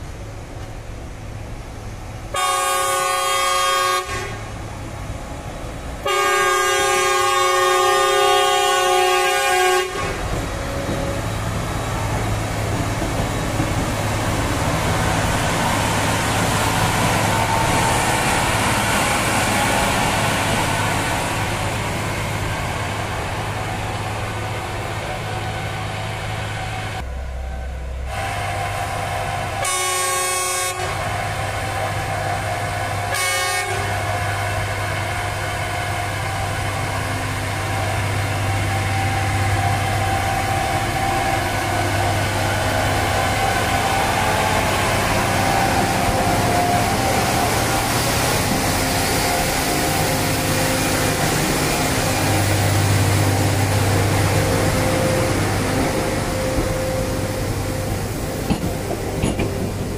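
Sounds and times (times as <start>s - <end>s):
diesel engine rumbling: 0.0s - 59.9s
machine horn: 2.4s - 4.4s, 6.1s - 10.2s, 29.6s - 31.0s, 33.1s - 34.0s.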